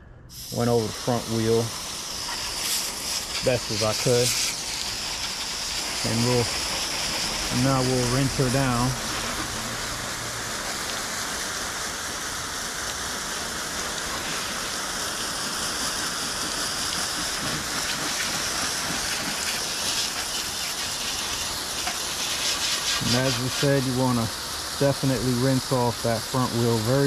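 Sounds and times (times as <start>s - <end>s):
hose spraying water: 0.3s - 27.0s.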